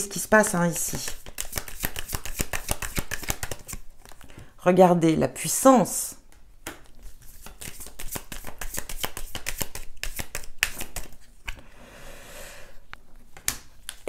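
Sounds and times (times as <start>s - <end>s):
cards being shuffled: 0.4s - 4.4s, 6.6s - 11.6s
cards sliding rustle: 0.8s - 4.4s, 6.9s - 11.6s.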